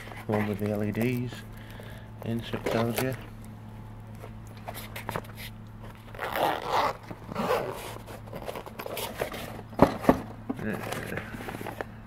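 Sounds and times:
handling rustle: 0:00.0 - 0:03.5, 0:04.1 - 0:12.0
zipper being pulled shut: 0:06.1 - 0:09.2.

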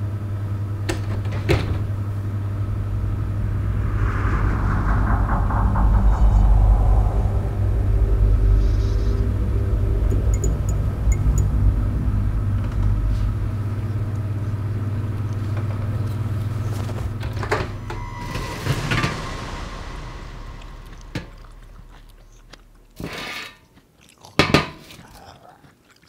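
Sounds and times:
low rumbling drone: 0:01.8 - 0:23.2.

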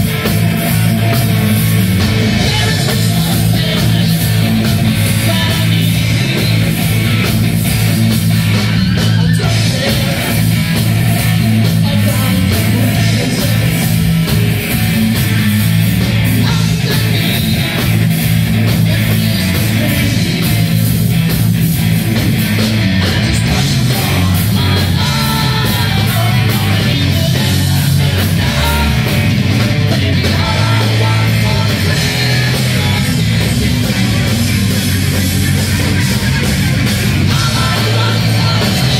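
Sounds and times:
drum kit: 0:00.0 - 0:38.9
electric guitars: 0:00.0 - 0:38.9
lead singer singing: 0:02.2 - 0:07.2, 0:08.7 - 0:14.8, 0:16.3 - 0:20.9, 0:23.0 - 0:34.2, 0:37.2 - 0:38.9.

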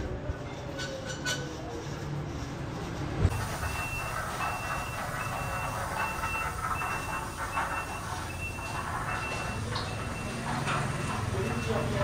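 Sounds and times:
workshop background noise: 0:00.0 - 0:12.0
electronic warning beeper: 0:03.3 - 0:12.0.

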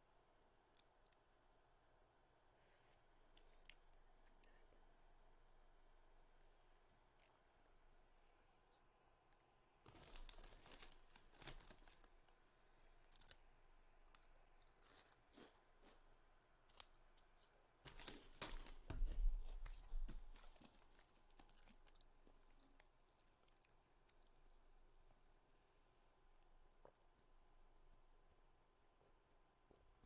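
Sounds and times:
plastic crinkling: 0:09.8 - 0:12.4, 0:17.8 - 0:22.0.

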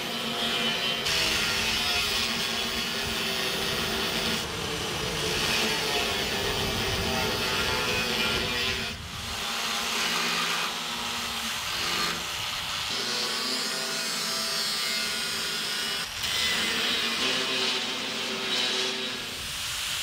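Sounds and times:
angle grinders grinding steel: 0:00.0 - 0:20.0.

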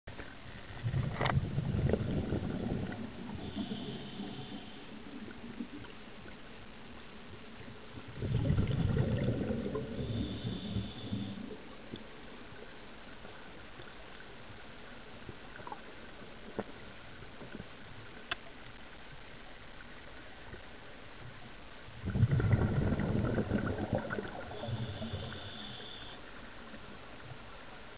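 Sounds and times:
faint steady hiss: 0:00.1 - 0:27.9
underwater air bubbles rumbling: 0:00.6 - 0:06.0, 0:08.0 - 0:12.0, 0:21.9 - 0:25.8.

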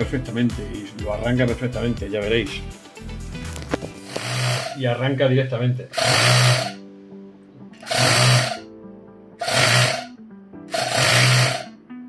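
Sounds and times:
mini air compressor running: 0:04.0 - 0:04.8, 0:05.9 - 0:06.8, 0:07.8 - 0:08.6, 0:09.4 - 0:10.1, 0:10.7 - 0:11.7.

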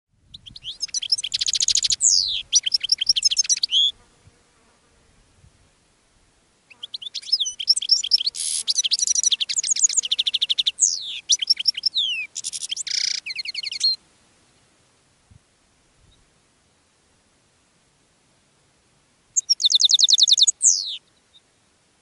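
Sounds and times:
goldfinch twittering song: 0:00.3 - 0:03.9, 0:06.7 - 0:14.0, 0:19.4 - 0:21.4.

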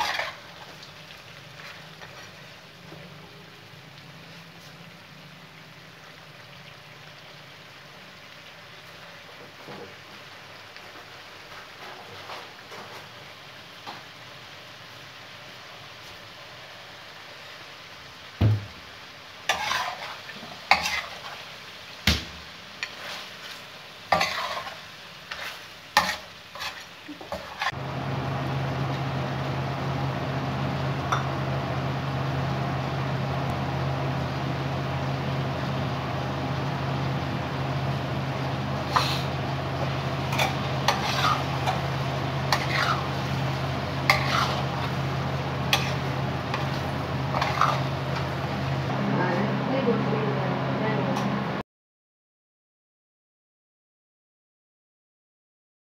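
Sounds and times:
metal spatula scraping pan: 0:00.0 - 0:00.6, 0:19.5 - 0:21.4, 0:22.8 - 0:27.8, 0:38.8 - 0:48.6
meat sizzling: 0:00.0 - 0:50.2
spatula clanking on pan: 0:24.1 - 0:27.7.

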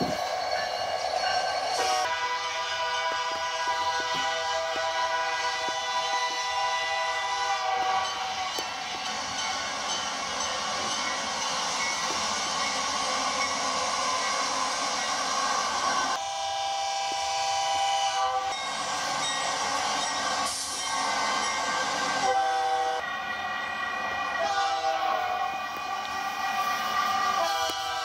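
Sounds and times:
rushing train noise: 0:00.0 - 0:28.0
locomotive air horn blasts: 0:01.8 - 0:08.6, 0:16.2 - 0:18.7, 0:22.2 - 0:23.0, 0:24.4 - 0:25.3.

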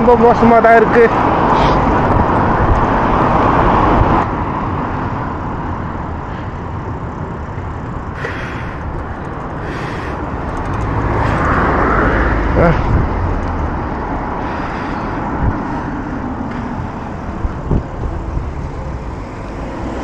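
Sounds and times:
passing cars and road noise: 0:00.0 - 0:20.0.

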